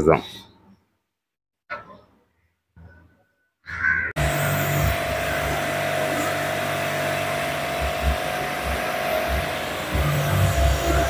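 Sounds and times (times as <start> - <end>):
pressure washer motor humming: 4.2 - 11.0
water jet hissing on metal coil: 4.2 - 11.0.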